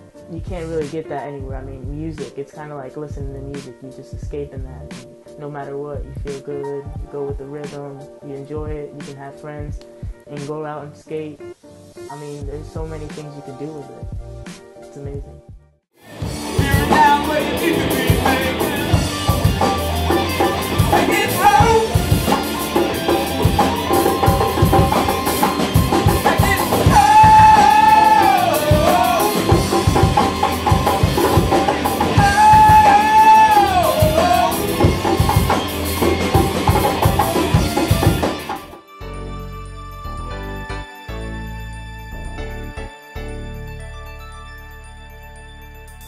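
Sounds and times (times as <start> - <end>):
live rock band playing: 16.0 - 38.8
person singing: 16.1 - 22.4, 26.1 - 35.5.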